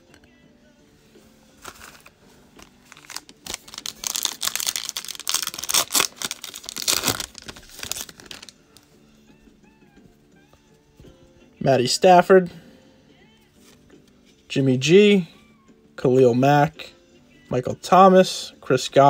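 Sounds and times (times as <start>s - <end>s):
foil wrapper tearing and crinkling: 1.6s - 8.6s.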